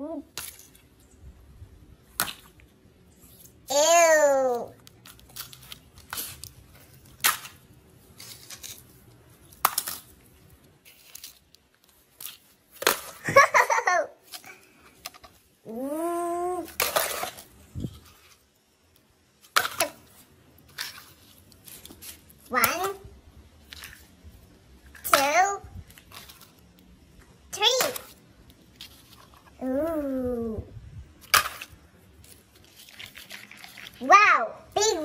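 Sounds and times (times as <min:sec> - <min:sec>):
person giggling: 0:13.2 - 0:14.1.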